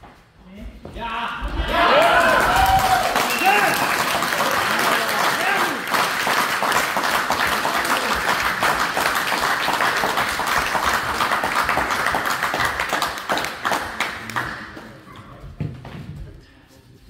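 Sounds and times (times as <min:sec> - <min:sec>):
crowd applauding: 0:01.8 - 0:15.1.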